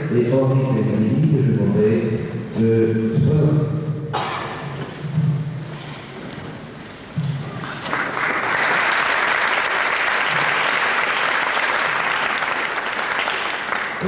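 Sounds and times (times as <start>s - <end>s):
audience applauding: 7.5s - 14.0s.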